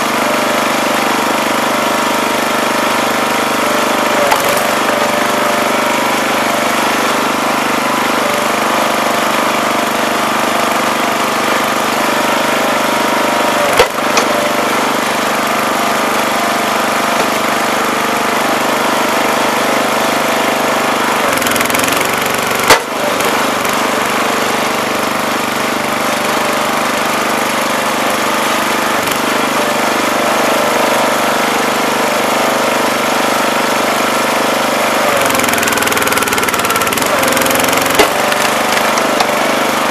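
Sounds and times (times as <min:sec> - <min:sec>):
small gas engine running: 0:00.0 - 0:39.9
wood splitting cracks: 0:04.1 - 0:05.2, 0:13.6 - 0:14.5, 0:21.3 - 0:23.0, 0:35.3 - 0:39.4.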